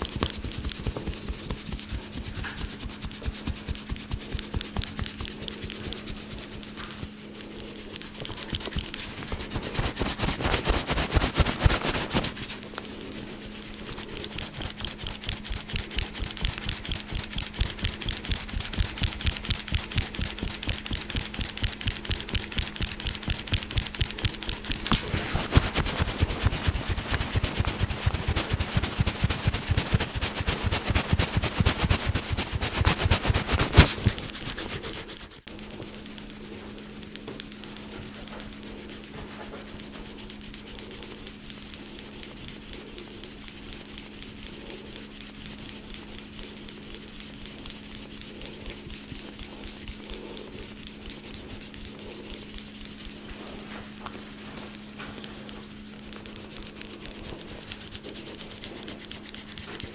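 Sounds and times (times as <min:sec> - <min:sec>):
hands slapping in percussive massage: 0:00.0 - 0:13.2, 0:13.8 - 0:36.0
low hum and hiss: 0:00.0 - 0:59.9.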